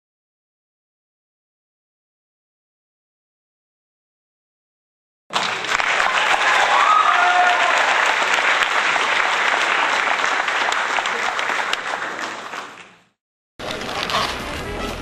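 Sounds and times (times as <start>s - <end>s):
audience applause: 5.3s - 14.3s.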